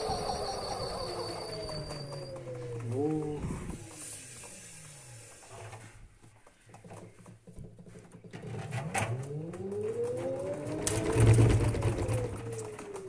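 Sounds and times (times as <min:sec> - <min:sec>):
low hum: 0:00.0 - 0:05.9, 0:08.4 - 0:13.0.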